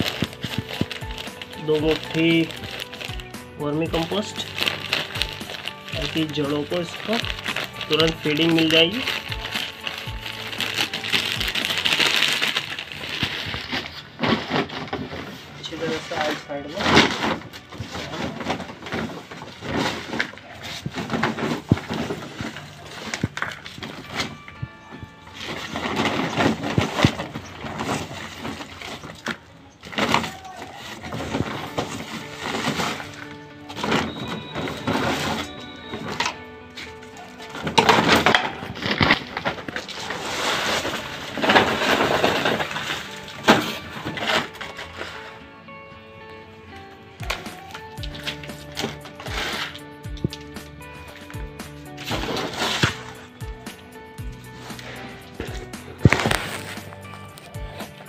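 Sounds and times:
soil pouring rustle: 0.0 - 14.0, 37.1 - 45.3, 52.0 - 53.3
plastic scoop scraping soil: 0.0 - 24.4, 25.3 - 45.4, 48.2 - 50.4, 52.0 - 53.3, 54.6 - 58.0.

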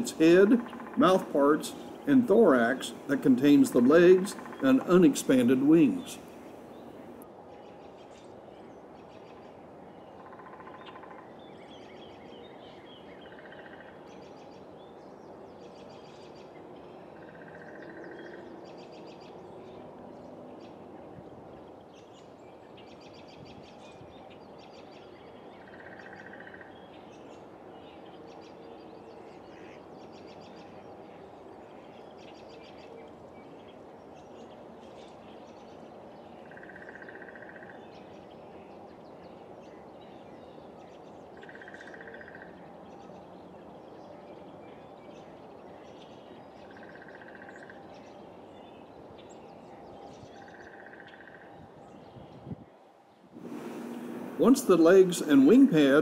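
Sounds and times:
steady hiss: 0.0 - 7.2, 53.3 - 56.0
rapid animal chirps: 3.8 - 6.4.

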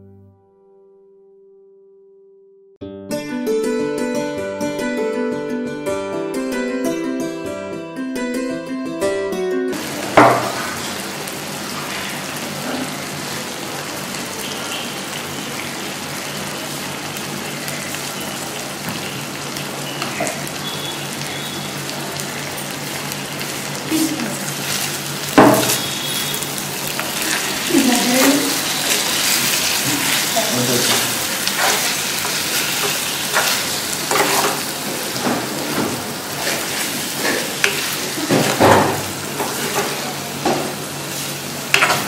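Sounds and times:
gravy sizzling: 9.8 - 42.0.

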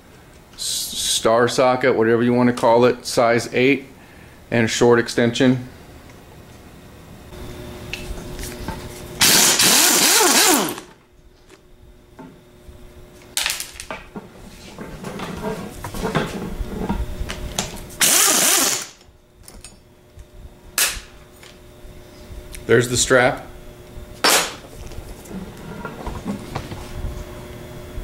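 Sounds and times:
power driver whining: 9.2 - 11.0, 17.6 - 19.1.

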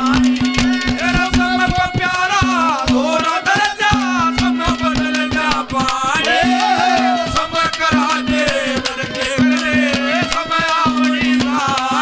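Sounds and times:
fast hand drum strokes: 0.0 - 12.0
harmonium melody: 0.0 - 12.0.

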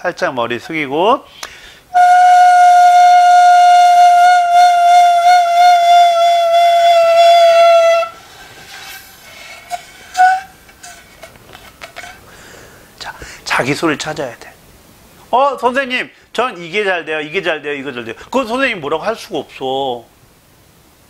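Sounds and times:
flute long held note: 1.9 - 11.0.

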